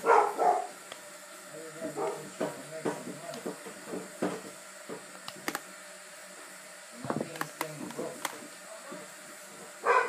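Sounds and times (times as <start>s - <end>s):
sharp clicks: 5.2s - 5.6s.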